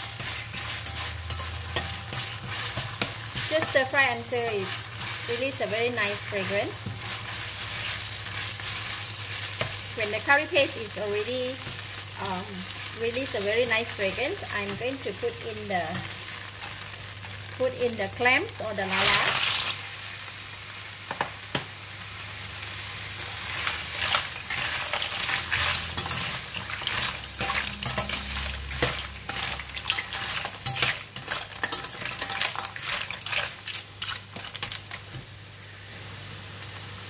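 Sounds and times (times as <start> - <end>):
shells and spatula clattering on pan: 0.0 - 5.3, 23.2 - 35.2
clams sizzling in a wok: 0.0 - 37.0.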